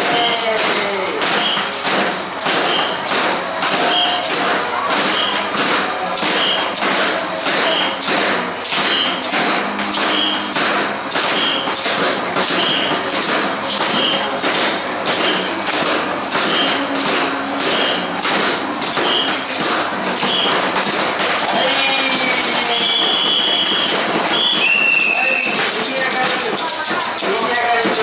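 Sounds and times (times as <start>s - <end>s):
sticks beating drums: 0.0s - 28.0s.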